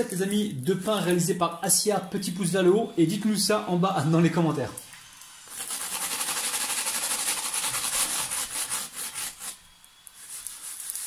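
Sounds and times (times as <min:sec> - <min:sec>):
spatula scraping flatbread in pan: 0:05.5 - 0:09.6, 0:10.2 - 0:11.0.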